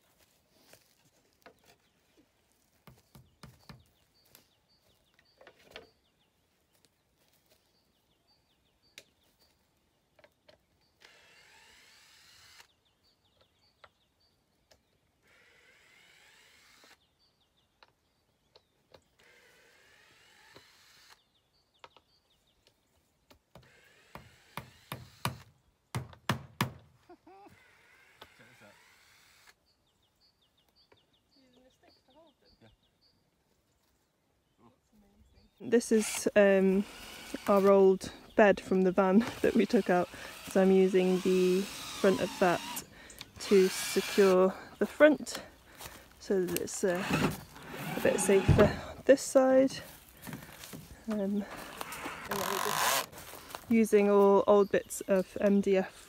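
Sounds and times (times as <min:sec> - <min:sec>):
cordless drill running: 0:11.0 - 0:12.7, 0:15.3 - 0:17.0, 0:19.2 - 0:21.2, 0:23.7 - 0:25.4, 0:27.5 - 0:29.6, 0:35.9 - 0:37.7, 0:39.1 - 0:45.0, 0:46.9 - 0:48.9, 0:51.6 - 0:53.2.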